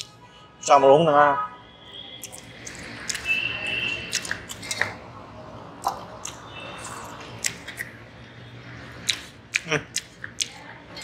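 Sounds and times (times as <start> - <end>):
chewing: 2.2 - 3.3, 3.9 - 5.0, 5.8 - 8.0, 8.9 - 11.0
wet squishes: 2.2 - 5.0.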